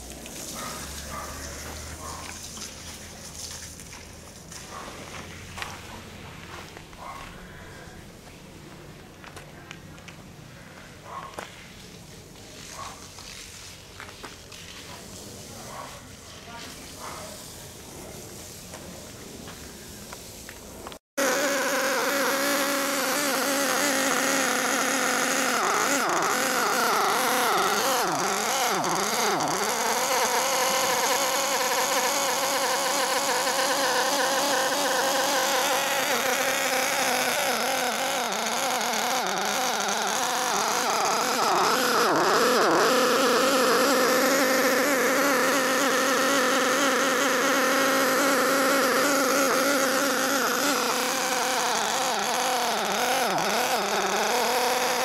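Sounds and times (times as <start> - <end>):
small engine high buzz: 0.0 - 8.2, 20.8 - 55.0.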